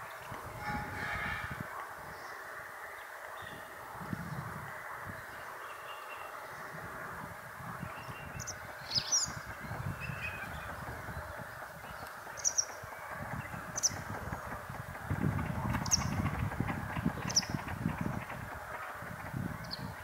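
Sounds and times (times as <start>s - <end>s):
rushing background noise: 0.0s - 20.0s
bird calls: 7.8s - 20.0s.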